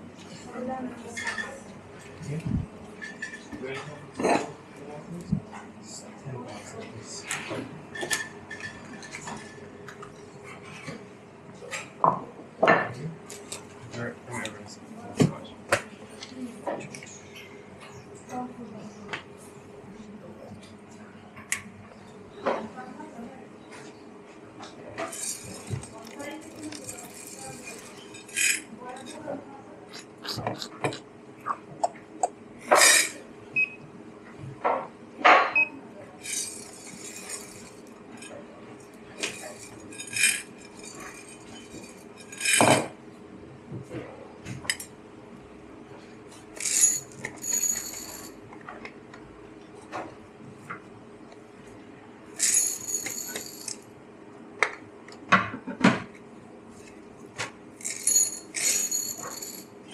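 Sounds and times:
steady low hum: 0.0s - 59.9s
cups and tools clinking: 25.0s - 29.2s, 32.7s - 33.2s, 36.2s - 38.4s, 39.2s - 42.9s, 46.6s - 48.4s, 52.4s - 53.8s, 57.8s - 59.9s.

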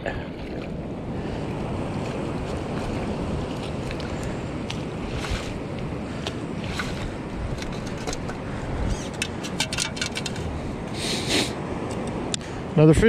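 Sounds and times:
shallow surf washing: 0.0s - 13.0s
wind buffeting microphone: 0.0s - 13.0s
hand rustling through sand: 2.1s - 7.4s
sand scoop rattling clicks: 6.2s - 10.5s.

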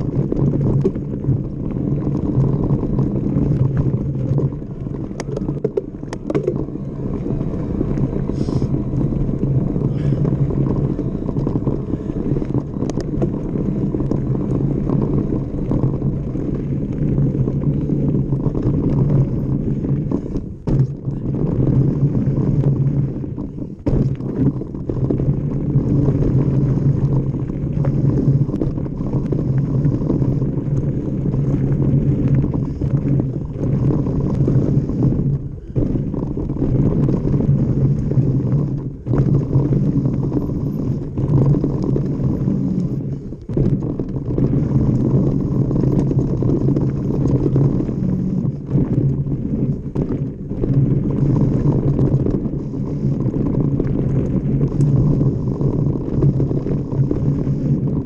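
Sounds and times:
tyres rumbling over dirt: 0.0s - 58.0s
wind rushing on microphone: 0.0s - 58.0s
bike knocks and rattles: 20.2s - 21.3s, 23.6s - 25.2s.

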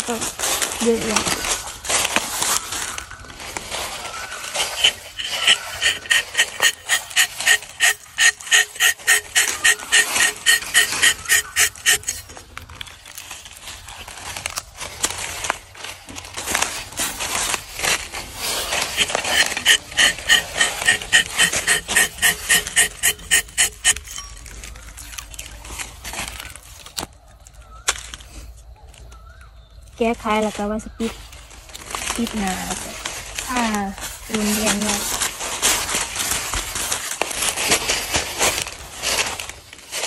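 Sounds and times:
knife rasping on tree bark: 4.4s - 12.4s, 18.4s - 24.4s.

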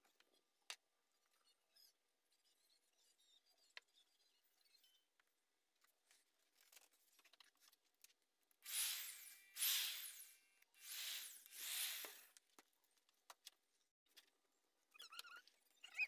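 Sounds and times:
electric drill whining: 8.7s - 12.3s.

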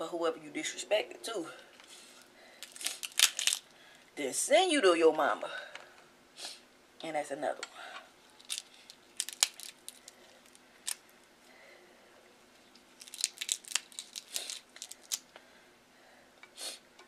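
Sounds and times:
crab shell cracking and snapping: 2.6s - 3.8s, 8.4s - 11.1s, 12.7s - 15.3s.

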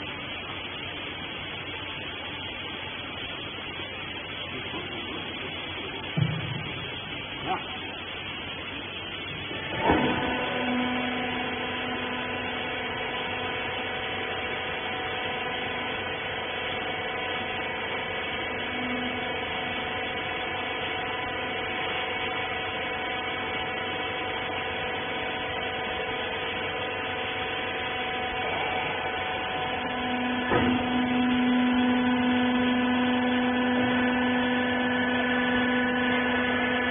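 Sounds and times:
hydraulic unit whining: 0.4s - 36.9s
clunk: 30.4s - 30.9s.

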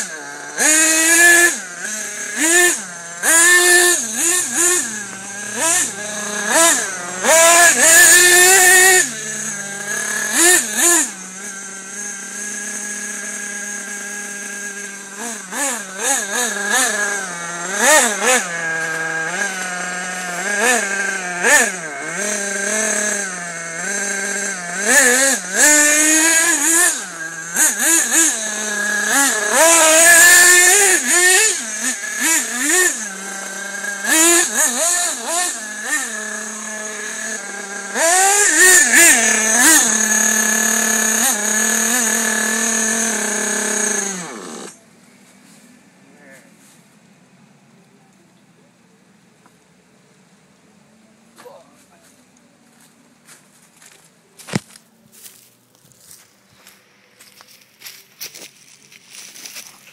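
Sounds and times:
model car engine revving: 0.0s - 45.0s.

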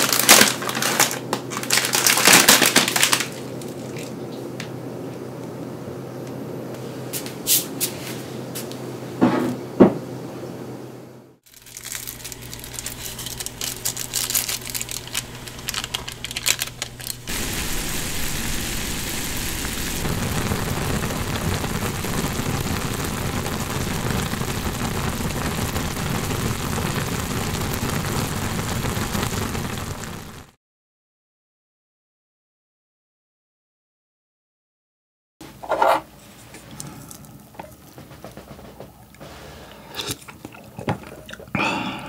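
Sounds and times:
plastic packet crinkling: 0.0s - 4.1s, 11.4s - 18.9s
water boiling in a pot: 11.5s - 30.6s.

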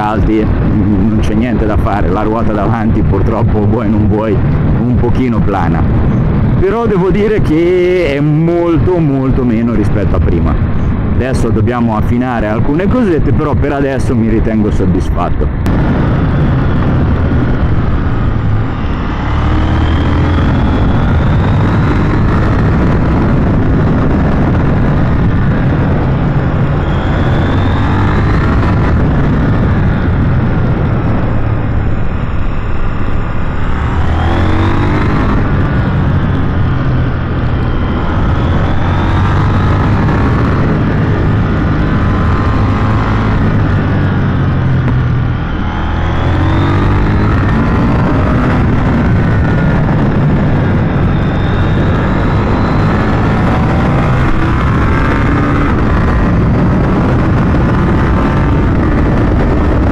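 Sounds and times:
road and wind noise: 0.0s - 59.9s
motorcycle engine revving: 15.6s - 59.9s.

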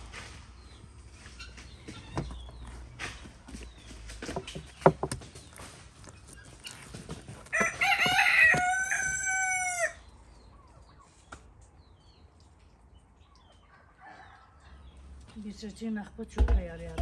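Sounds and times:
rooster crowing: 7.5s - 10.1s.

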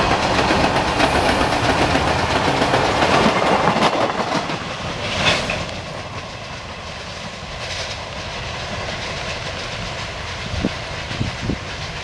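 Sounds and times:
train wheels clattering over joints: 0.0s - 12.0s.

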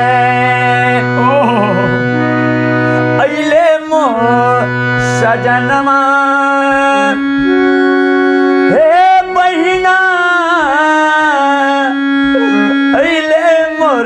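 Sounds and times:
harmonium chords: 0.0s - 14.0s
man singing: 0.0s - 14.0s.

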